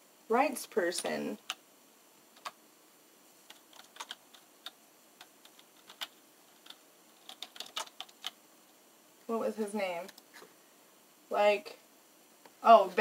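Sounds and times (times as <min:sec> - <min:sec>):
keyboard keystrokes: 0:03.5 - 0:08.4.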